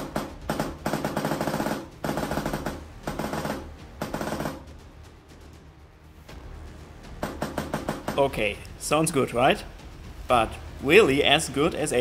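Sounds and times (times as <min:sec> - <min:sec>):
airsoft gun shots and bursts: 0:00.0 - 0:04.7, 0:07.2 - 0:08.3.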